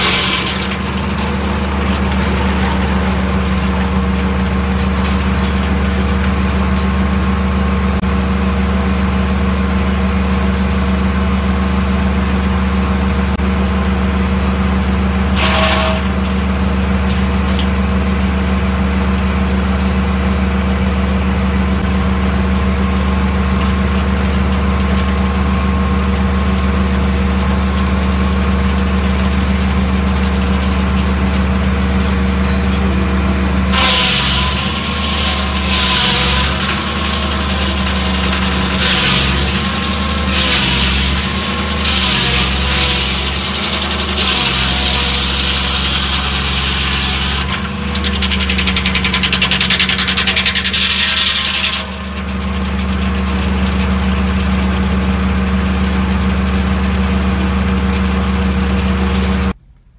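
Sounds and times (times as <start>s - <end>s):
sharp clatter: 0.0s - 8.0s, 15.3s - 18.1s, 33.6s - 55.1s
sawmill engine droning: 0.0s - 59.6s.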